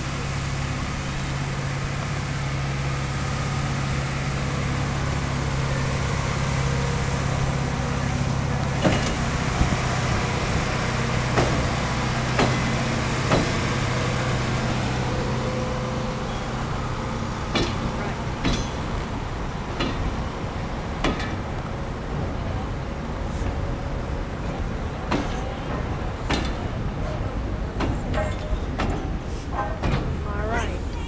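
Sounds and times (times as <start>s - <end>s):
diesel engine running: 0.0s - 31.0s
sharp metal clanks: 17.5s - 19.0s.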